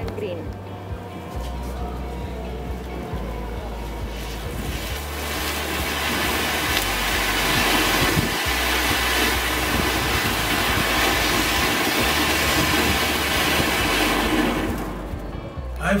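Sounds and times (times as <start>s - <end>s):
firework fountain hissing: 3.8s - 15.3s.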